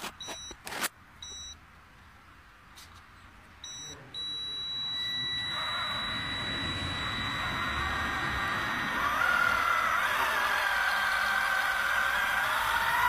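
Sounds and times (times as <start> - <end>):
short electronic beeps: 0.2 - 0.6, 1.2 - 1.6, 3.6 - 9.9
fishing reel motor whining: 4.4 - 13.0.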